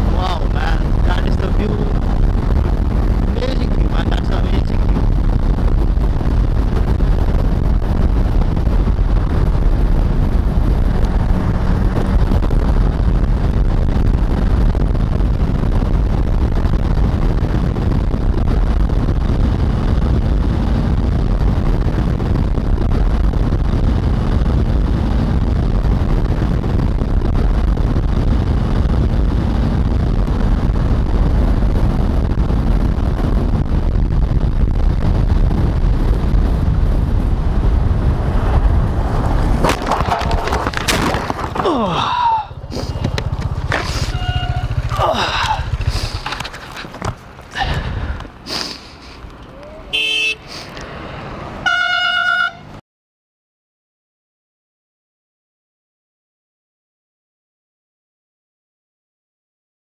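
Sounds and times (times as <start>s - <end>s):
wind buffeting microphone: 0.0s - 49.4s
motorcycle engine running: 42.4s - 48.2s.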